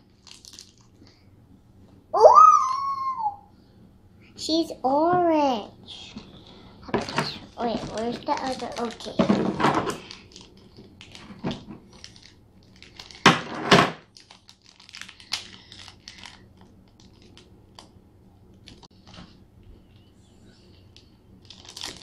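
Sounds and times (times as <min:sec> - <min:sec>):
paper wrapping crinkling: 0:00.0 - 0:01.0, 0:07.0 - 0:17.9, 0:20.7 - 0:22.0.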